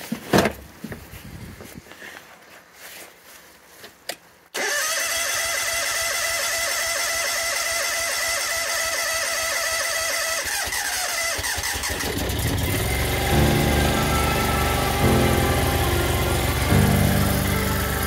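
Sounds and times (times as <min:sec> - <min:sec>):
petrol engine starting and running: 0:04.5 - 0:18.0.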